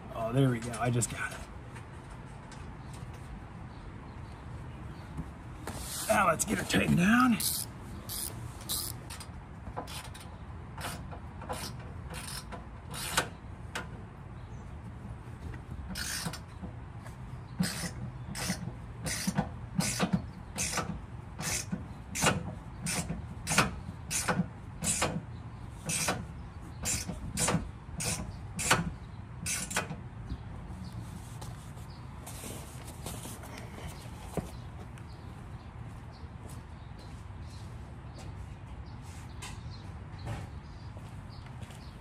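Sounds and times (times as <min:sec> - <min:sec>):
ratchet wrench clicking: 0:07.4 - 0:09.3.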